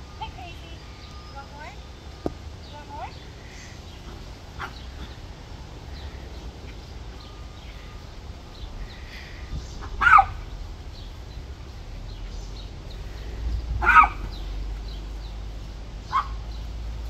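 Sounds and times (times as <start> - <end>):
dog barking: 4.6 - 5.1, 10.0 - 10.4, 13.8 - 14.3, 16.1 - 16.4.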